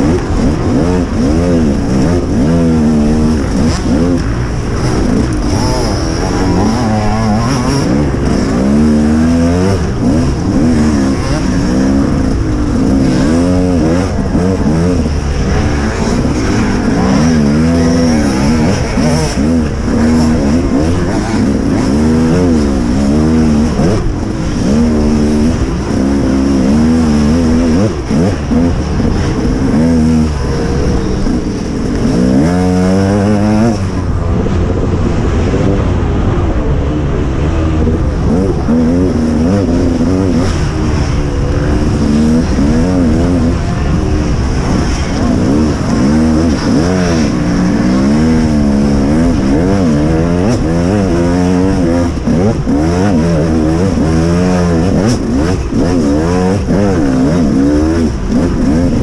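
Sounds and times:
motocross bike engine revving: 0.0 - 59.0.

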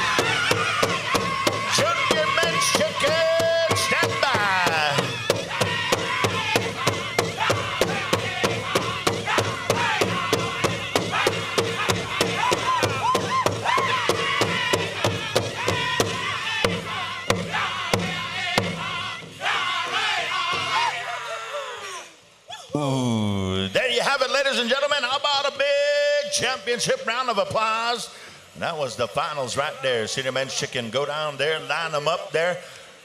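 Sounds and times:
big drum struck steadily: 0.0 - 20.8.

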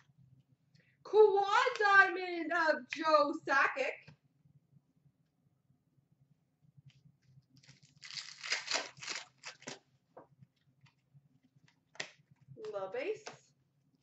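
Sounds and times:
wrapper ripping and rustling: 7.6 - 9.8.

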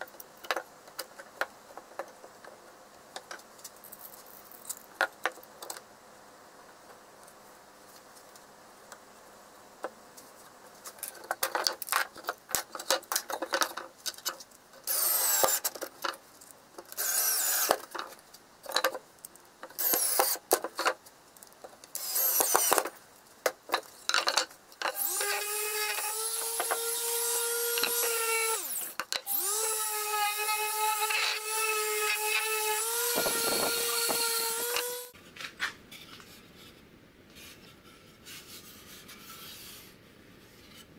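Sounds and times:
cordless drill driving screws: 14.9 - 15.7, 17.0 - 17.8, 19.8 - 20.4, 22.0 - 22.9, 24.9 - 35.1
orbital sander humming: 29.4 - 35.2.

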